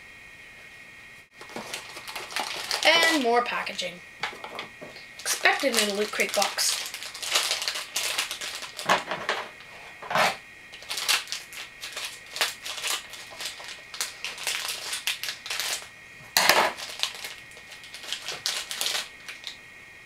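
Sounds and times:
packaging crinkling and tearing: 1.4 - 3.4, 5.1 - 9.7, 10.8 - 15.9, 16.6 - 19.6.

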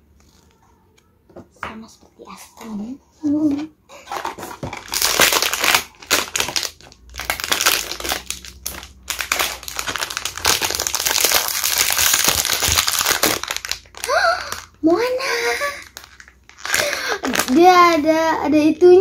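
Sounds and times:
foil bag crinkling: 4.0 - 18.0.

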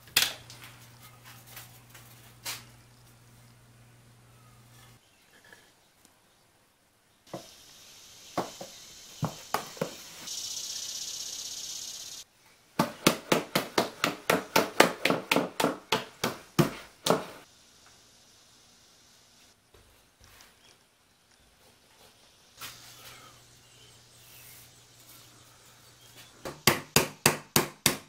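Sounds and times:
soft hiss with clicks: 17.7 - 19.6.

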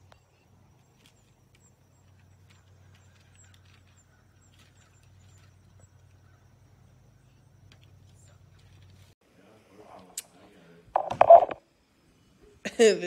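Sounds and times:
faint high chirps and ticks: 0.0 - 9.0.

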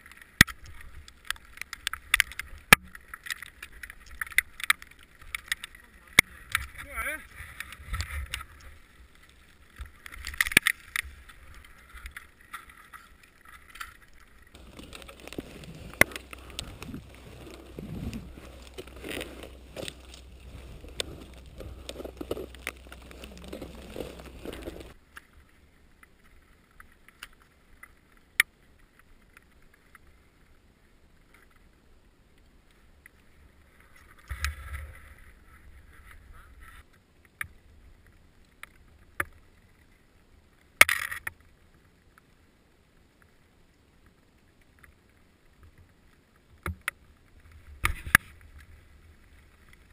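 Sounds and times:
crampons and ice tools biting: 14.6 - 25.0.

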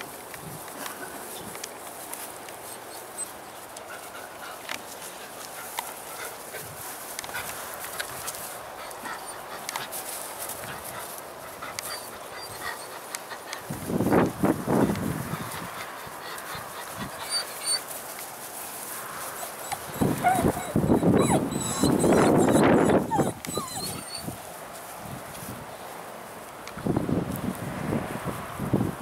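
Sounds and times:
faint rustling and clicks: 0.0 - 20.8.

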